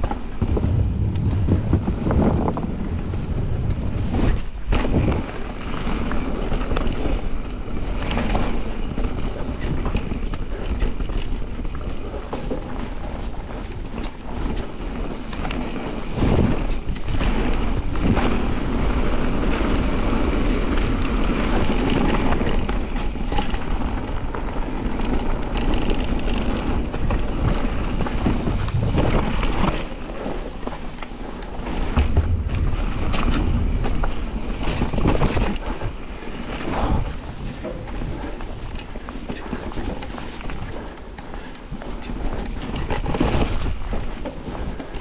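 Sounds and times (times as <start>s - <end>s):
bike rattling over bumps: 0.0s - 45.0s
bike tyres on gravel: 0.0s - 45.0s
wind on microphone: 0.0s - 45.0s.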